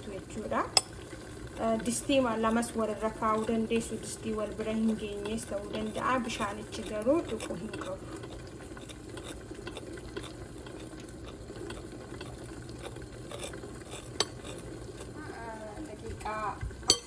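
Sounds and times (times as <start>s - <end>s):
spoon beating cream in bowl: 1.6s - 15.2s.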